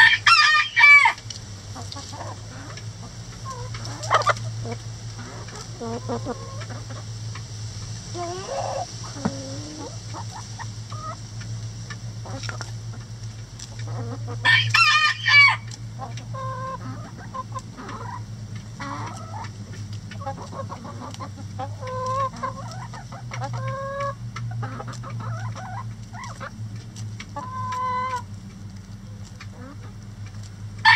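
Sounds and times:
rooster crowing: 0.0 - 1.2, 14.4 - 15.7
chickens clucking: 0.0 - 30.9
steady low hum: 0.0 - 30.9.

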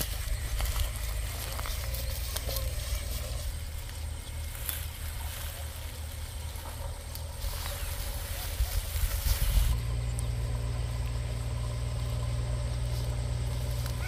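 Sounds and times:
wind rumbling on microphone: 0.0 - 10.3
footsteps through tall grass: 0.0 - 14.0.

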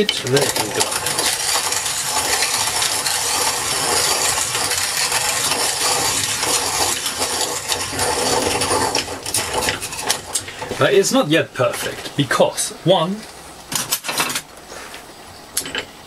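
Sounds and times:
hand grain mill crunching beans: 0.0 - 12.2.

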